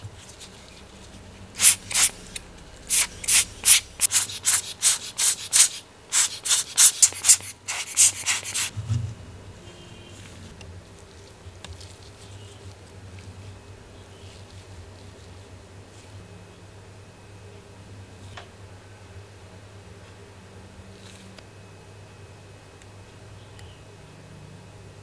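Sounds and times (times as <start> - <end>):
stiff brush scrubbing metal: 1.5 - 8.8.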